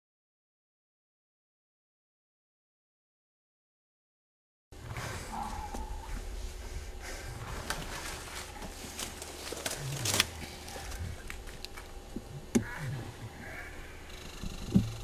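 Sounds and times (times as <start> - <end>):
rustling through dry leaves: 5.0 - 11.8.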